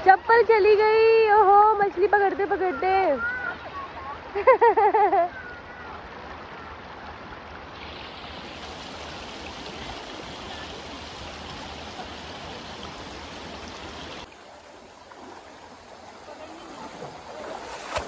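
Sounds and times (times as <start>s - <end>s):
river flowing over gravel: 5.9s - 18.0s.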